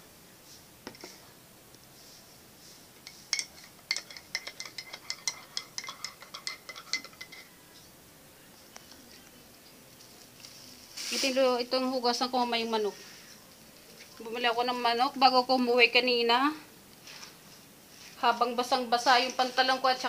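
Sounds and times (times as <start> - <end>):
spoon clinking in a cup: 3.1 - 7.6.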